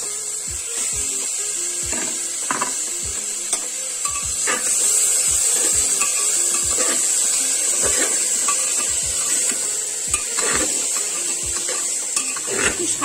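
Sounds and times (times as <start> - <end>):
sizzle of frying: 0.0 - 13.0
metal spatula scraping a pot: 4.0 - 13.0.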